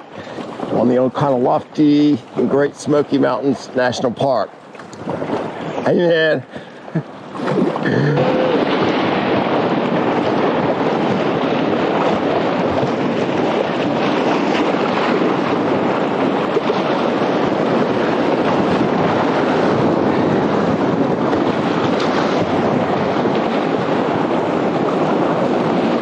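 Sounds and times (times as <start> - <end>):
whitewater rapids rushing: 5.2 - 26.0.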